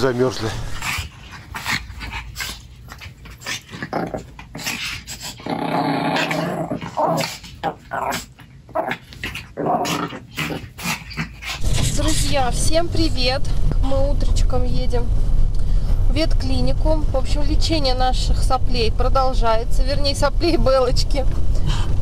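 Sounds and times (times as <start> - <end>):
dogs growling playfully: 0.5 - 12.5.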